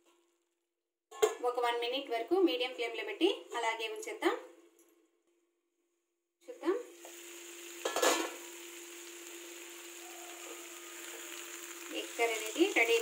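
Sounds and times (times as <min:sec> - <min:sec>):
gravy sizzling and simmering: 0:06.6 - 0:13.0
metal pan lid clink: 0:07.8 - 0:08.4.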